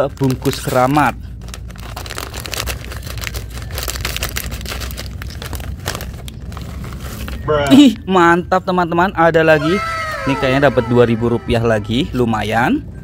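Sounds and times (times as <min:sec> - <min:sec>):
plastic snack bag crinkling: 0:00.0 - 0:07.4.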